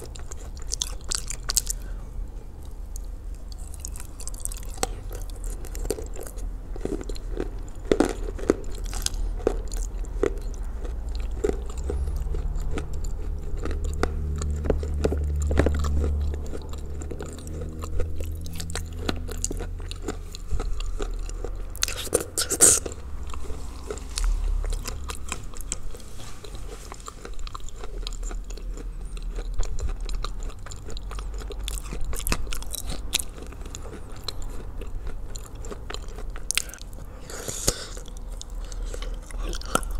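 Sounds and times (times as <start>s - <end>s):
low hum: 0.0s - 37.3s
crunching and chewing clay: 0.0s - 39.9s.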